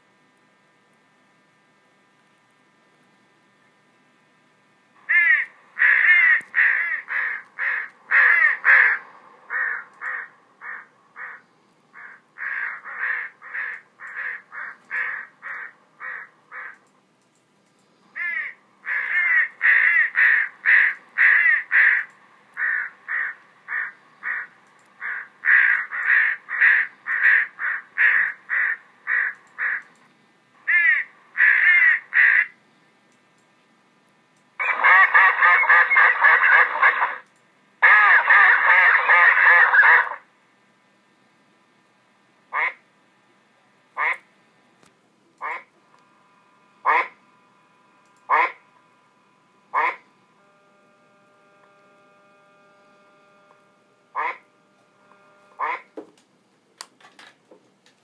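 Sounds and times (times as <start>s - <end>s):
recorded crow caws: 5.0s - 16.9s, 18.1s - 30.0s, 30.6s - 32.6s, 42.5s - 42.8s, 44.0s - 44.3s, 45.4s - 45.7s, 46.8s - 47.2s, 48.3s - 48.6s, 49.8s - 50.1s, 54.2s - 54.5s, 55.6s - 56.0s.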